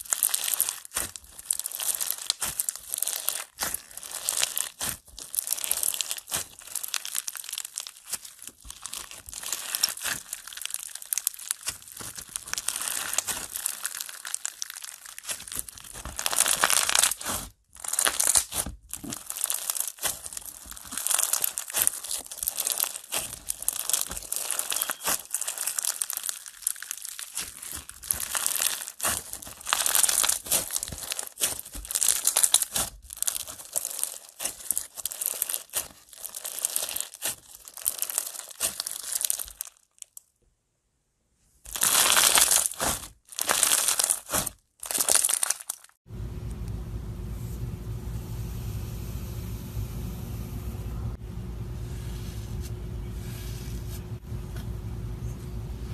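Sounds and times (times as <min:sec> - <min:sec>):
crunchy slime crackling: 0:00.0 - 0:40.2, 0:41.7 - 0:46.0.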